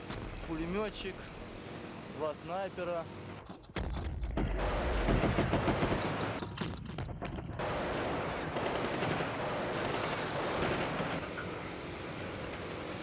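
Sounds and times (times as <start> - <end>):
automatic gunfire: 4.4 - 6.4, 7.5 - 11.2.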